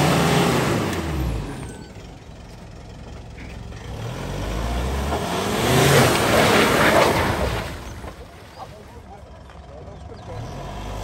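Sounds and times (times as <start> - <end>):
suv engine revving: 0.0 - 2.2, 3.2 - 11.0.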